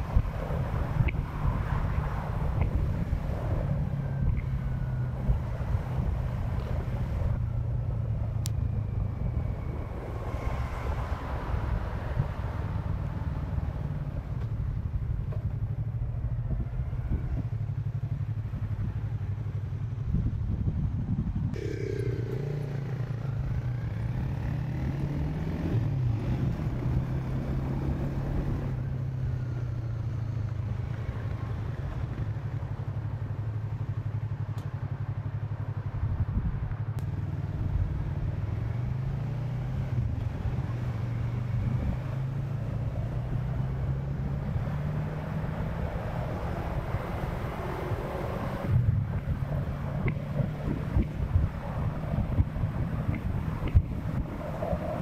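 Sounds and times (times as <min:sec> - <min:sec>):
motorcycle engine revving: 0:21.6 - 0:29.7, 0:37.1 - 0:55.0.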